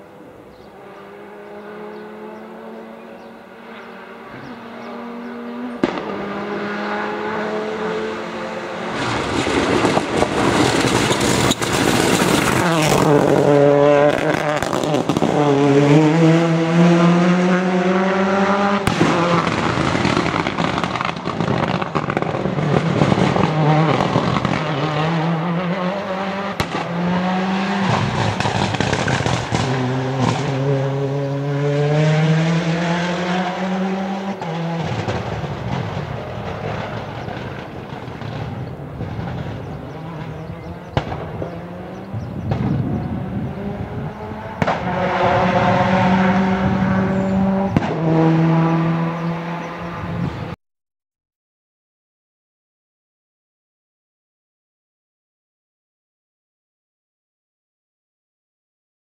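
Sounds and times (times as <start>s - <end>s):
rally car engine revving: 0.5s - 50.6s
engine sharp cracks: 8.9s - 13.5s, 18.8s - 24.7s, 27.8s - 30.6s, 34.4s - 42.8s.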